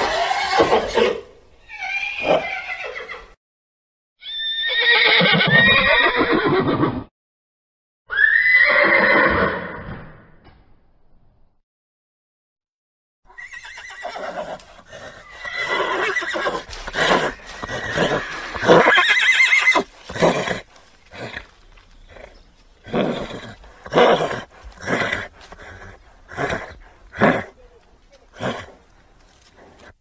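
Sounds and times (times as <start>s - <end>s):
horse whinnying: 0.0s - 3.4s, 4.2s - 7.1s, 8.1s - 10.0s, 13.3s - 27.6s.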